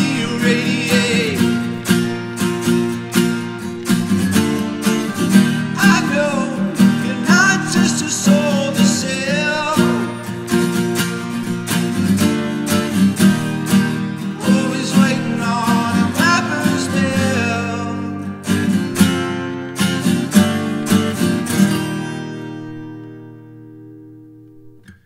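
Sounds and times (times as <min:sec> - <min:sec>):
man singing: 0:00.0 - 0:02.3, 0:04.9 - 0:11.4, 0:14.3 - 0:18.6
acoustic guitar strumming: 0:00.0 - 0:25.0.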